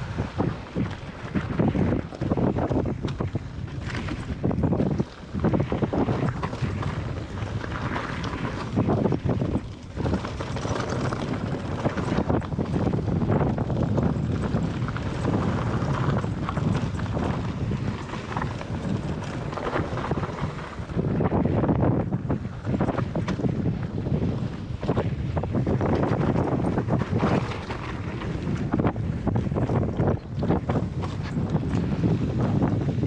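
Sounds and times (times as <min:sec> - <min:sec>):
mountain bike rattling on gravel: 0:00.0 - 0:33.0
wind rumbling on microphone: 0:00.0 - 0:33.0.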